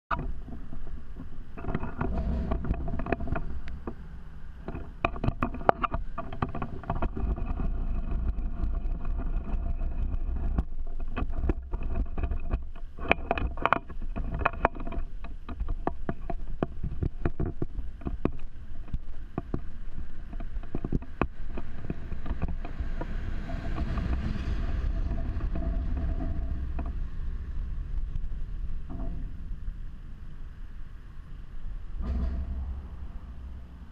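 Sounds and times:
wind rumble: 0.1 - 33.9
distant city noise: 17.8 - 33.9.

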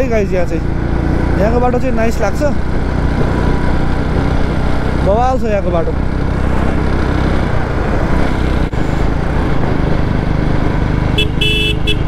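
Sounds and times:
motorcycle engine running: 0.0 - 12.0
road noise: 0.0 - 12.0
horn short beeps: 11.2 - 12.0.

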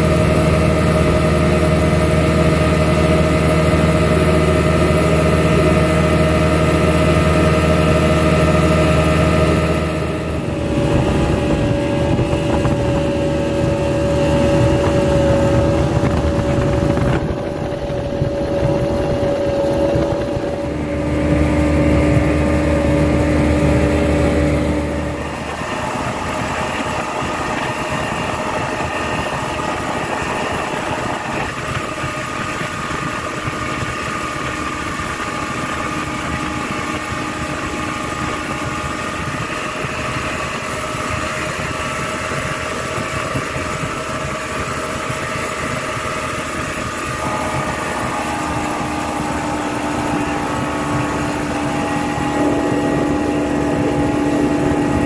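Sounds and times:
speedboat engine droning: 0.0 - 55.0.

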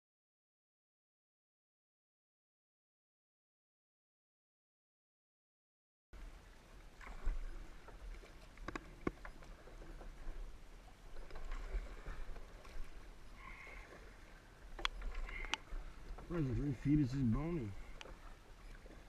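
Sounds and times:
paddle strokes in water: 6.2 - 19.0
water rippling along hull: 6.2 - 19.0.

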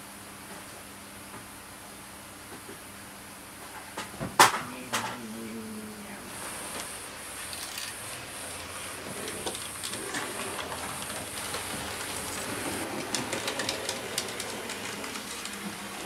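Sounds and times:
model train wheels clicking: 7.4 - 16.0.

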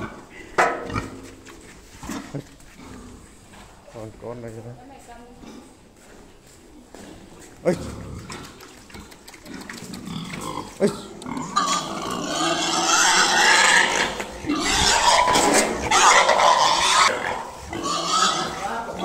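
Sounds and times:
pig squealing: 10.1 - 19.0.

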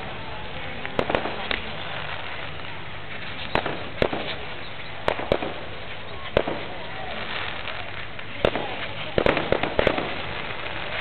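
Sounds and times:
fireworks banging: 0.0 - 11.0
outdoor background noise: 0.0 - 11.0.

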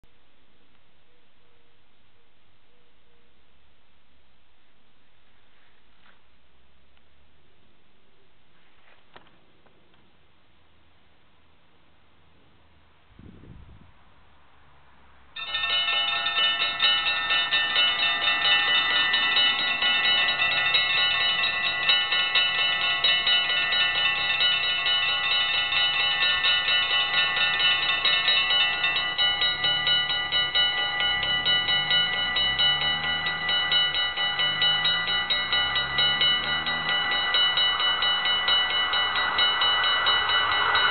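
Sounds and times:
level crossing bells ringing: 15.4 - 40.9
low pitch-varying sound: 28.6 - 40.9.

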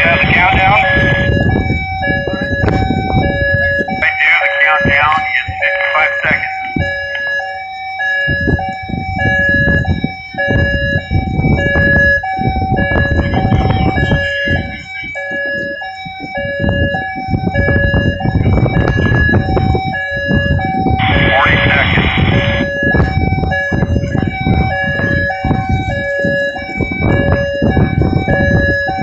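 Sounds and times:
two-tone warning alarm: 0.0 - 29.0
loud uneven rushing noise: 21.0 - 22.6.

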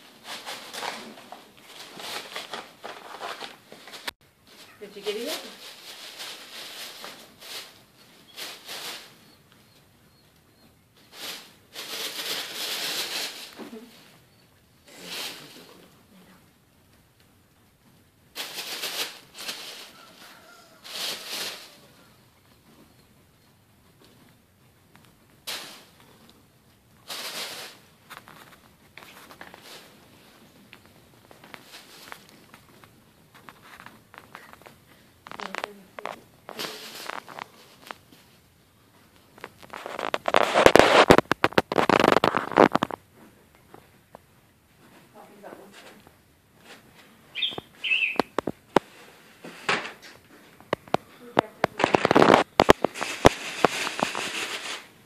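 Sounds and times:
tissue paper crinkling: 0.2 - 9.2, 11.1 - 13.9, 18.4 - 21.9, 27.0 - 38.4, 39.3 - 43.0, 51.6 - 55.0.

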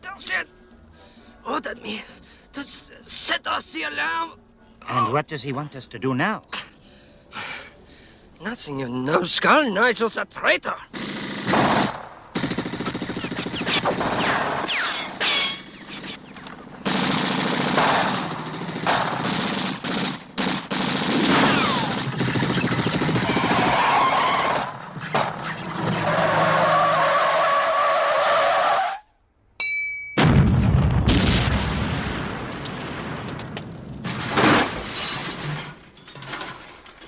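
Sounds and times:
sharp cracks: 11.0 - 25.4
tyres skidding on dirt: 21.3 - 29.0
car and truck engines: 24.9 - 28.7.

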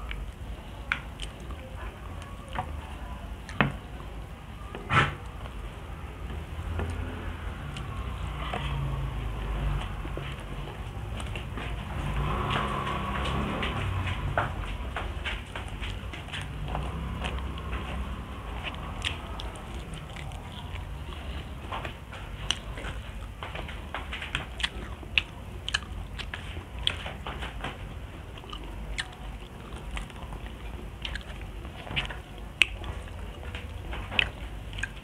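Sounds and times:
low steady hum: 0.0 - 35.0
person chewing food: 0.0 - 35.0
mouth clicks and smacks: 7.7 - 27.8, 28.4 - 35.0.

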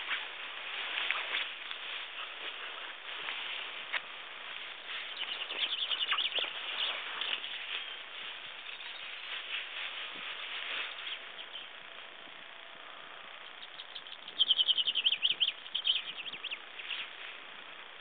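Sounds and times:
chaffinch singing: 4.7 - 12.2, 12.9 - 17.5.

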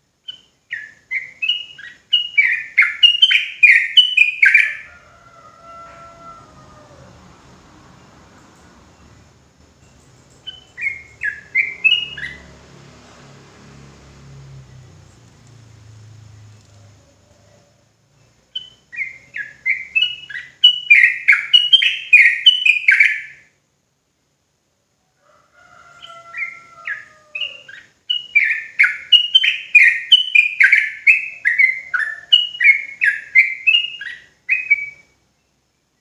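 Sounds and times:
bulbul singing: 0.2 - 4.9, 8.0 - 12.7, 17.6 - 23.5, 26.0 - 35.6.

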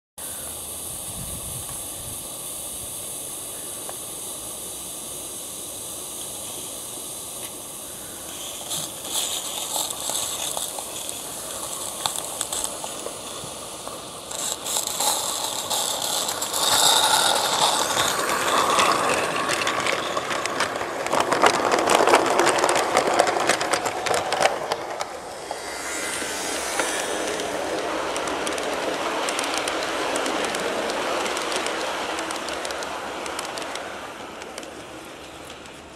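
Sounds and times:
steam locomotive hiss: 0.2 - 35.9
train wheels clicking and rattling: 6.1 - 25.6, 26.8 - 35.9
freight cars rolling rumble: 8.1 - 35.9.

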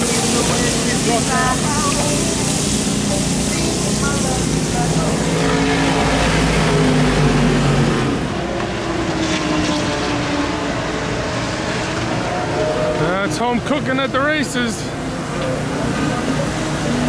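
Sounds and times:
stove burner hissing: 0.0 - 5.5
race car engines droning: 0.0 - 17.0.

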